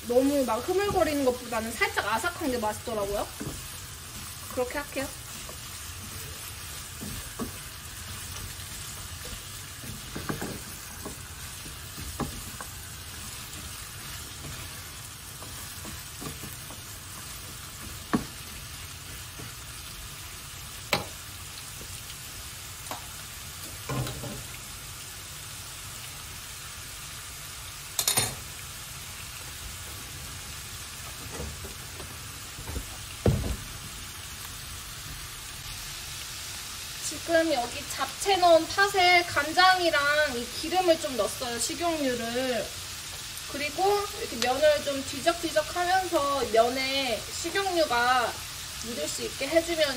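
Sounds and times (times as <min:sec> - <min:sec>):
vegetables sizzling in frying pan: 0:00.0 - 0:49.9
spatula scraping pan: 0:02.6 - 0:19.8.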